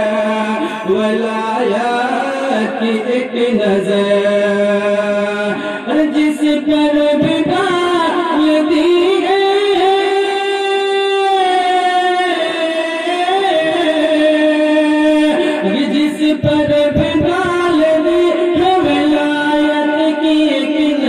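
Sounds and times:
man singing devotional poem: 0:00.0 - 0:21.0.

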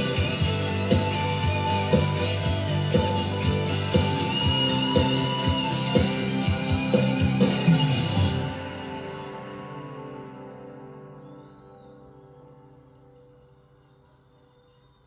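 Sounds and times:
drums keeping a steady beat: 0:00.0 - 0:09.4.

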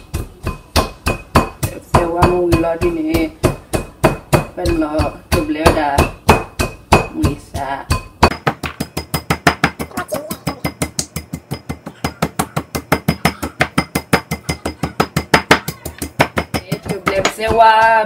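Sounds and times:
person speaking: 0:09.8 - 0:10.8.

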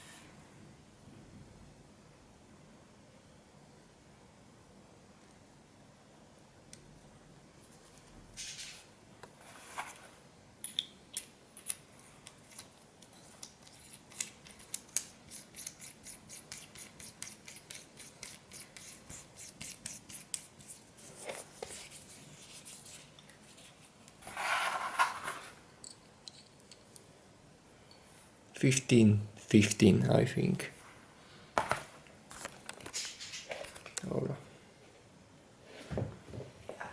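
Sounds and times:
scraping handling noises: 0:21.1 - 0:25.6.

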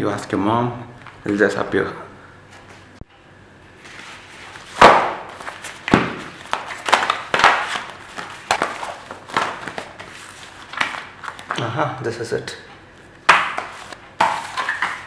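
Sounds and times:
paper rustling and slapping: 0:03.8 - 0:11.6, 0:13.3 - 0:15.0.

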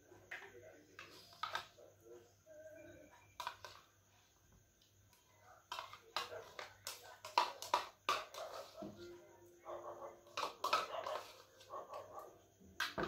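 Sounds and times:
faint steady whine: 0:00.0 - 0:07.2.

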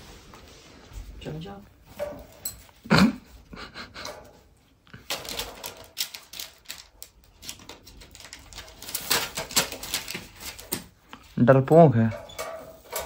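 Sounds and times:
wire birdcage rattling: 0:05.0 - 0:10.8, 0:11.6 - 0:13.0.

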